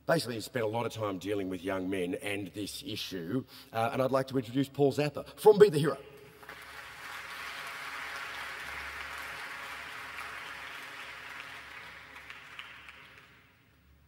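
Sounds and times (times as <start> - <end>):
audience applauding: 6.3 - 13.7.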